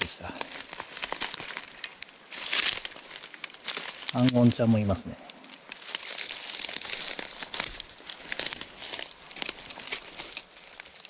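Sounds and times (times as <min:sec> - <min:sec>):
dry leaves rustling and crackling: 0:00.0 - 0:11.0.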